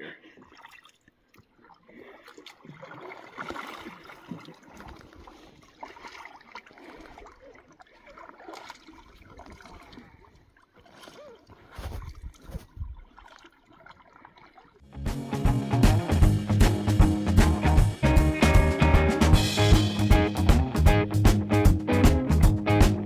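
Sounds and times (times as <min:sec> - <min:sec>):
water lapping against hull: 0:00.0 - 0:14.9
paddle strokes in water: 0:00.2 - 0:14.8.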